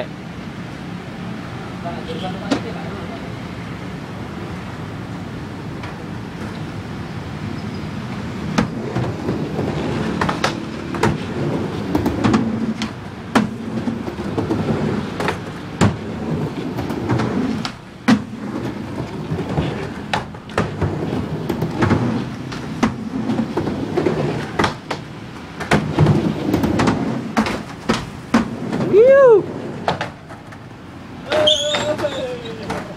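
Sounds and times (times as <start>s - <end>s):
skateboard wheels rolling: 0.2s - 32.9s
skateboard clacking on ramp: 8.5s - 29.0s, 29.7s - 32.9s.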